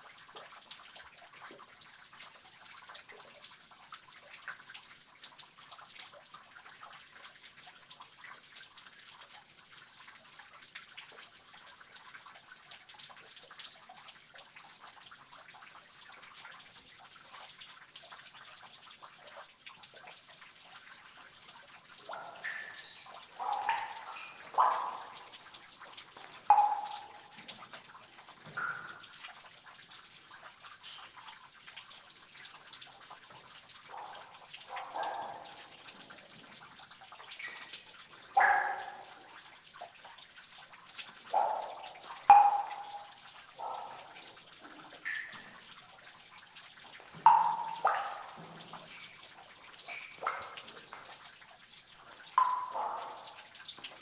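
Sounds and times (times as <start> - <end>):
water dripping in a cave: 0.0 - 54.0
loud water drops plinking: 22.0 - 25.5, 26.4 - 27.6, 28.5 - 29.2, 41.3 - 43.9, 45.0 - 45.6, 47.2 - 49.2, 49.8 - 50.6, 52.4 - 53.4.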